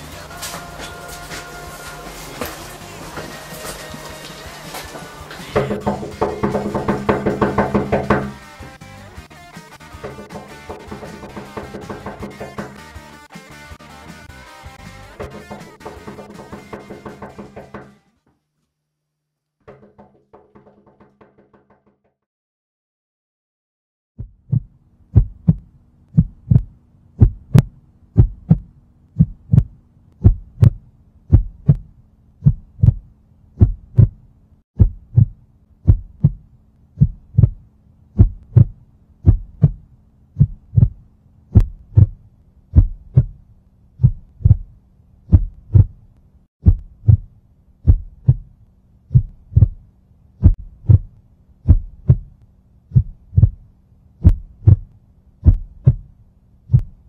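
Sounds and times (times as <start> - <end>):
heartbeat double thump: 24.2 - 34.2, 34.8 - 36.4, 37.0 - 37.6, 38.2 - 39.8, 40.4 - 43.4, 44.0 - 46.0, 46.6 - 48.5, 49.1 - 49.8, 50.4 - 51.1, 51.7 - 53.6, 54.2 - 56.1, 56.7 - 57.0
low steady hum: 24.5 - 57.0.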